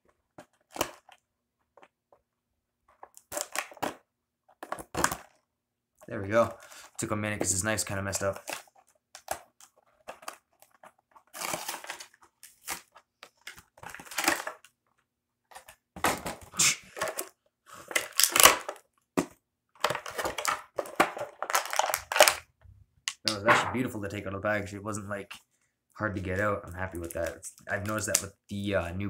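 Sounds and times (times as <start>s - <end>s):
plastic packaging crinkling: 8.1s - 19.0s, 19.8s - 22.4s.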